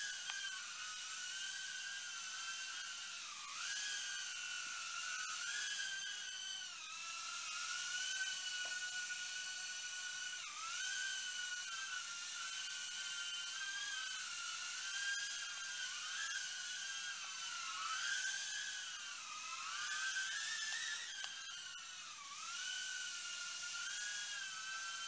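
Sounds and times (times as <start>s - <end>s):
quadcopter propellers whining: 0.0s - 25.0s.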